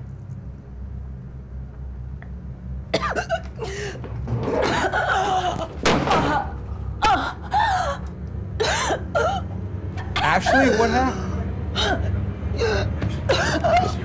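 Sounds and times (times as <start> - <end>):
woman's strained cries: 4.6 - 9.5, 11.8 - 14.0.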